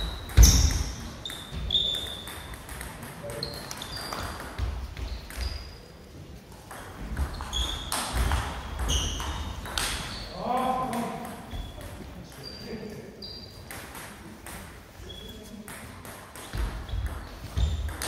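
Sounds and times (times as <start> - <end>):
ball bouncing on table: 0.0 - 5.7, 6.7 - 10.1, 15.7 - 18.0
table tennis ball clicking on paddles: 0.2 - 4.6.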